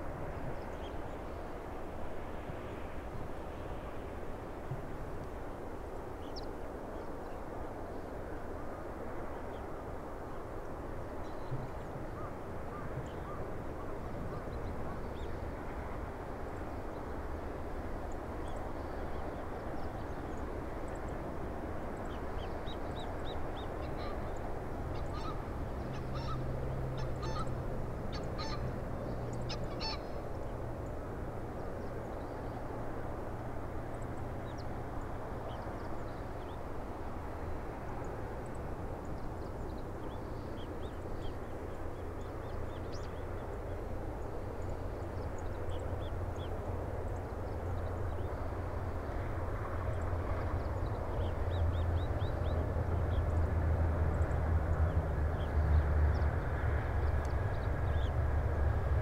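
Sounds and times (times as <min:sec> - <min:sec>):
birds honking: 0:27.0 - 0:27.5, 0:28.4 - 0:28.6, 0:29.5 - 0:30.0.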